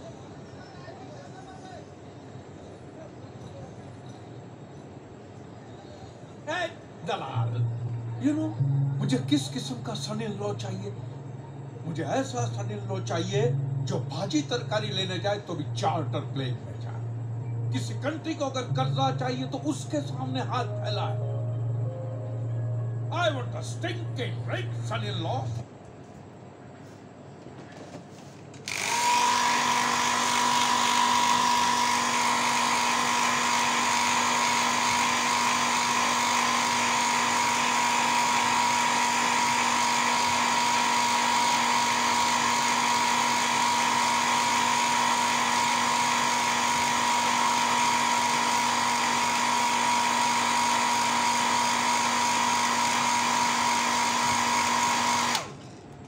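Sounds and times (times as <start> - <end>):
hair dryer blowing: 28.6 - 55.6.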